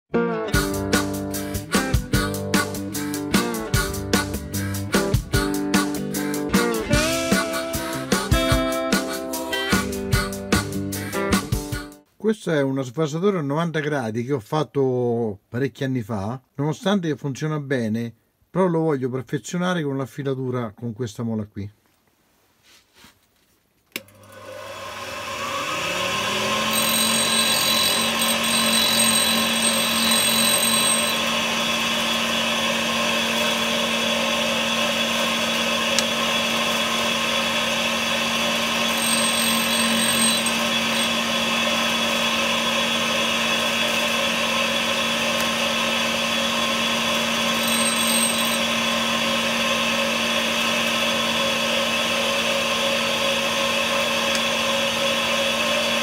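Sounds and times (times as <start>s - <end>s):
sharpening machine motor whirring: 24.0s - 49.3s
thin high whine: 26.3s - 31.4s, 38.9s - 41.4s, 47.6s - 48.7s.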